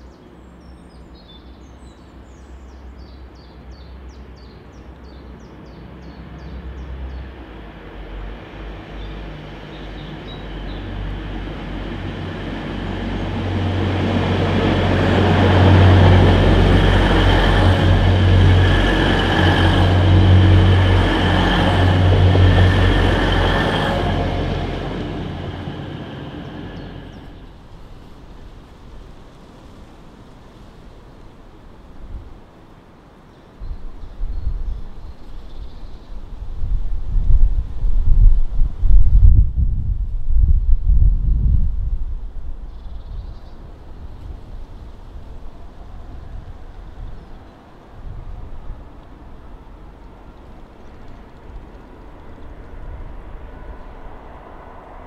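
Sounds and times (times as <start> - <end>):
diesel train engine drone: 5.4 - 28.7, 43.6 - 55.0
wheels rushing on rail: 5.6 - 32.5, 35.2 - 55.0.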